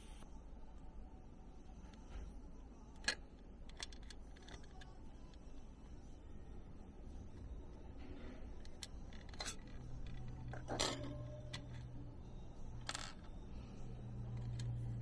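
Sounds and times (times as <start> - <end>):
metal parts clinking on steel tray: 8.6 - 11.9.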